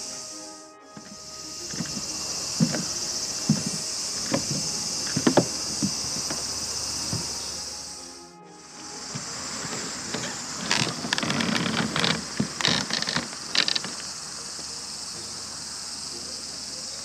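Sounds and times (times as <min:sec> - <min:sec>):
cicadas chorus: 0:00.0 - 0:17.0
footsteps on wooden decking: 0:01.0 - 0:07.7, 0:08.8 - 0:15.3.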